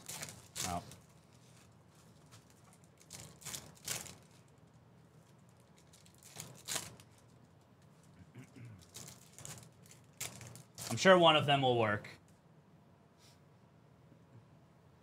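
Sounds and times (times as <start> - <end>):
wrappers crinkling and tearing: 0.0 - 8.2, 8.8 - 11.2.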